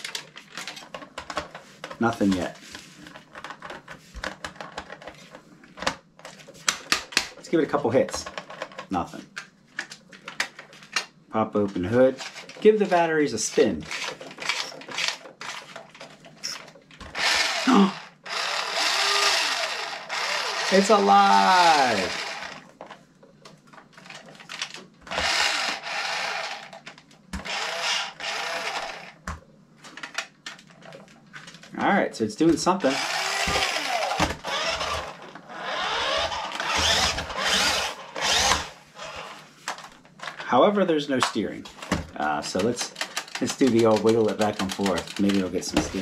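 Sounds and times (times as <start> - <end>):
small electric motor whirring: 17.1 - 22.6, 25.1 - 26.7, 27.4 - 29.2, 32.9 - 39.4.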